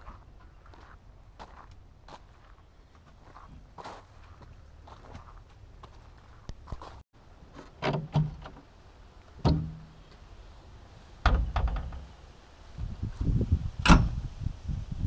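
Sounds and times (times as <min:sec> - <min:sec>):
metal door knocks and clunks: 0:09.4 - 0:09.8, 0:11.2 - 0:12.1
door slamming shut: 0:13.8 - 0:14.2.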